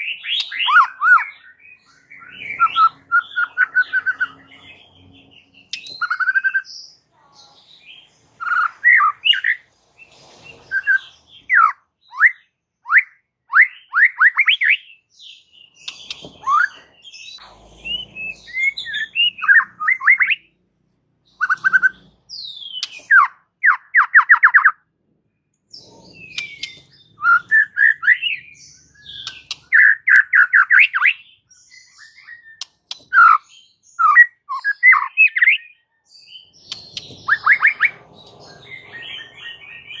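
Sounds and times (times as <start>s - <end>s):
bird singing whistled phrases: 0.0s - 4.4s, 5.7s - 6.7s, 10.7s - 15.0s, 17.8s - 20.5s, 26.2s - 38.0s.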